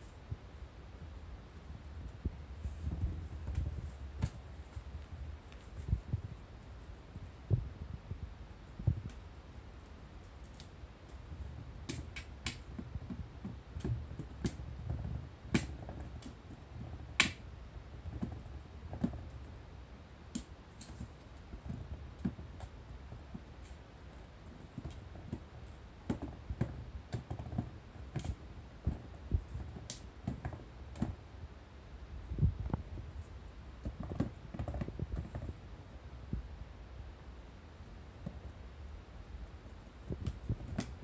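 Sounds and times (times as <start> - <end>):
soft low thumps: 0.0 - 9.2, 32.1 - 36.7
kittens pawing cardboard box: 9.8 - 19.6, 20.4 - 31.3, 32.3 - 35.7, 39.4 - 41.0.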